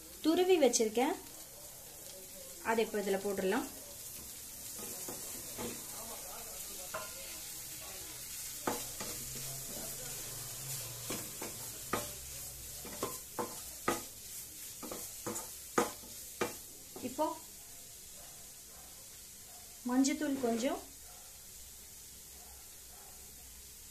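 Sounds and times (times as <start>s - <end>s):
frying sizzle: 0.0s - 23.9s
spatula knocking against pan: 8.6s - 9.2s, 12.8s - 14.1s, 14.8s - 17.2s.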